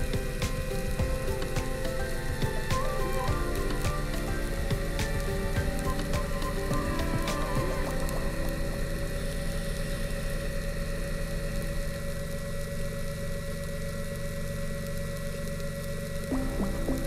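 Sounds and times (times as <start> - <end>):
underwater scooter motor hum: 0.0 - 17.0.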